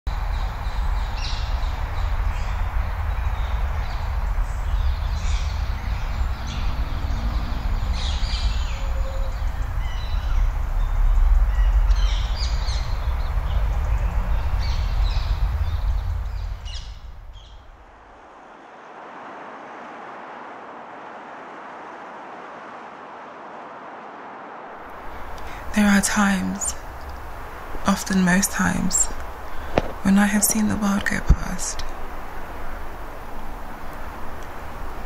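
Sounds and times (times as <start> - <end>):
low outdoor rumble: 0.1 - 35.0
birds calling: 0.2 - 17.9, 24.8 - 35.0.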